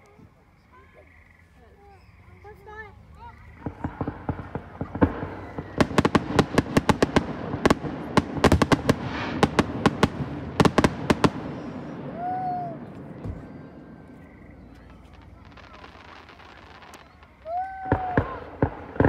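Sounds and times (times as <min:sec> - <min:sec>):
fireworks bangs: 0:02.6 - 0:19.0
fireworks hiss: 0:03.5 - 0:12.2, 0:13.0 - 0:19.0.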